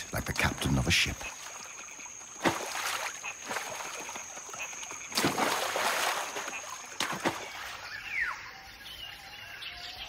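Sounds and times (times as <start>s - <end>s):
monkey splashing into water: 2.4s - 7.8s.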